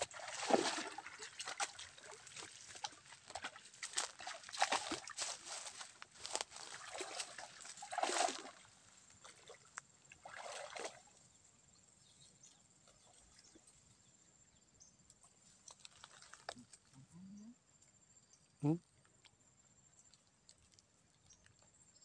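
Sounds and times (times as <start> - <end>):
splashing steps in water: 0.0 - 11.1.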